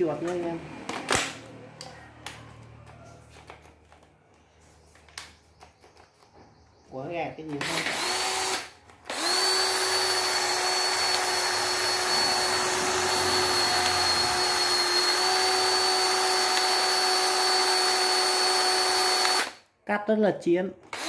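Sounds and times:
cutter motor whining: 0:07.5 - 0:19.6.

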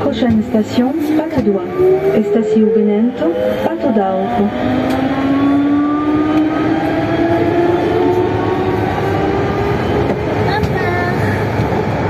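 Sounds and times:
metro train rumbling in tunnel: 0:00.0 - 0:12.0
traction motor whine rising: 0:01.6 - 0:10.1.

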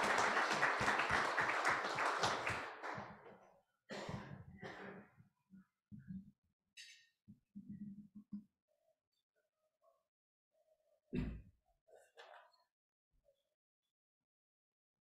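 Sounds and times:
audience applause: 0:00.0 - 0:03.1.

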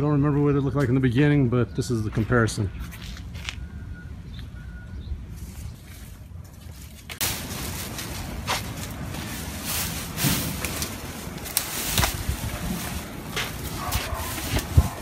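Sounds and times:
plastic bags rustling and knocking: 0:06.9 - 0:15.0.

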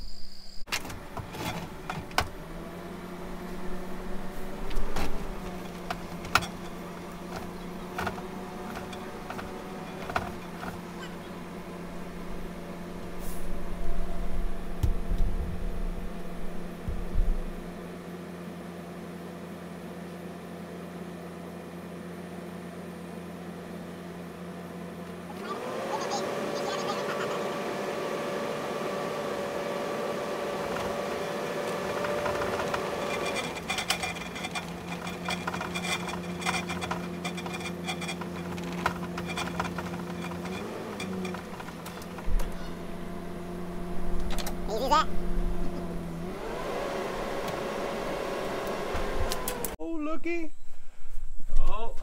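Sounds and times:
truck engine idling: 0:01.0 - 0:14.8, 0:31.6 - 0:46.3
cable clicking through conduit: 0:48.6 - 0:49.8.

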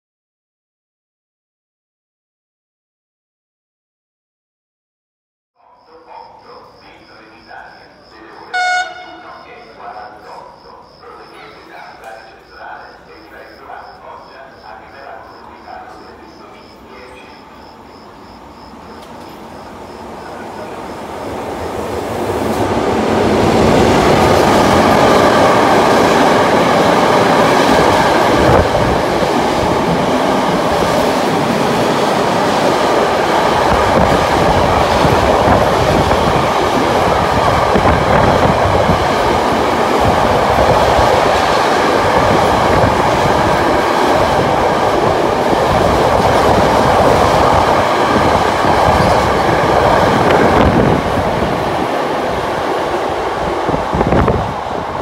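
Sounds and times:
train wheel on rail noise: 0:17.1 - 0:55.0.

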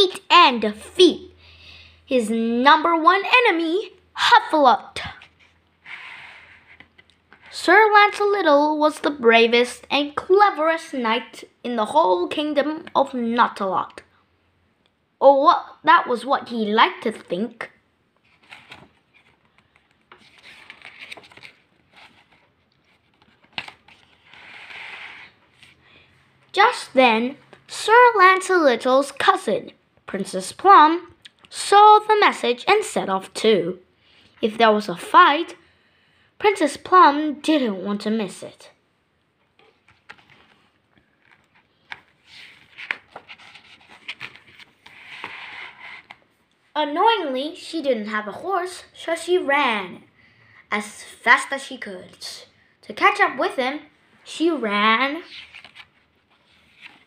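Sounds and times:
book pages rustling: 0:05.0 - 0:08.2, 0:18.2 - 0:25.8, 0:39.6 - 0:46.5, 0:55.2 - 0:57.0.

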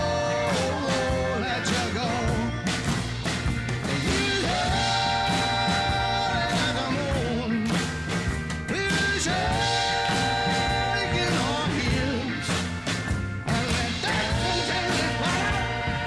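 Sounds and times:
person singing: 0:00.0 - 0:02.8, 0:13.5 - 0:16.0
blues-rock band playing: 0:00.0 - 0:16.0.

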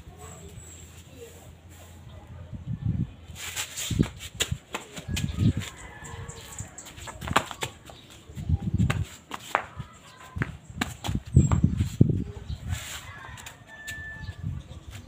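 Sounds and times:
flip-flop footsteps on concrete: 0:03.5 - 0:12.2, 0:12.8 - 0:15.0.

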